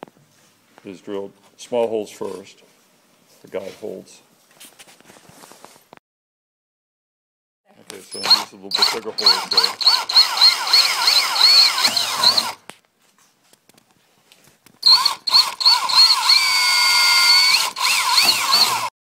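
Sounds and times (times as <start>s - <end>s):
power drill boring: 8.1s - 12.6s, 14.8s - 18.9s.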